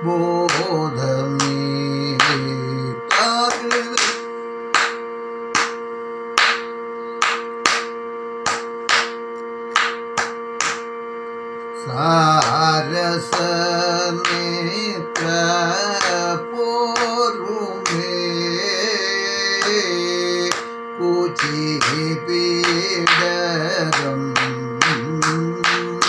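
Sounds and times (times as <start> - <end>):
man singing: 0.0 - 4.4, 11.8 - 26.0
steady drone: 0.0 - 26.0
sharp hand beats: 0.1 - 26.0.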